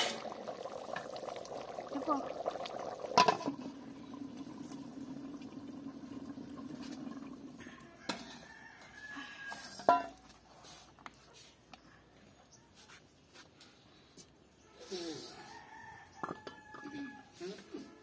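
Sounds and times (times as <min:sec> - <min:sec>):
metal cooking pot clanking: 0:03.0 - 0:03.7, 0:09.8 - 0:10.2
rooster crowing: 0:07.6 - 0:09.9, 0:15.2 - 0:17.4.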